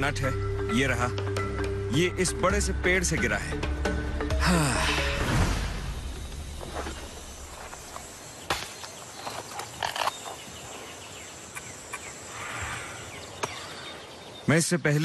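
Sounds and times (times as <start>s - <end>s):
faint forest hiss: 4.5s - 15.0s.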